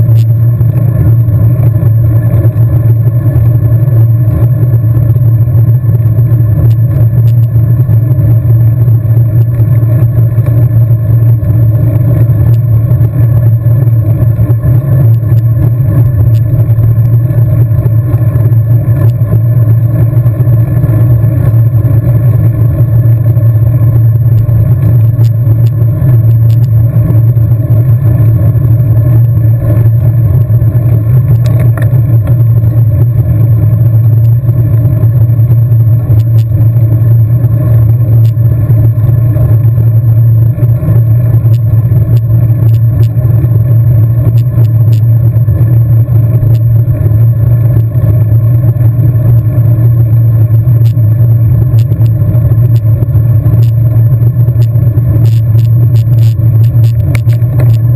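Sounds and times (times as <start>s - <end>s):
wind and road rumble from bike: 0.0s - 57.9s
faint clicks and rattles: 29.0s - 32.8s, 51.7s - 57.9s.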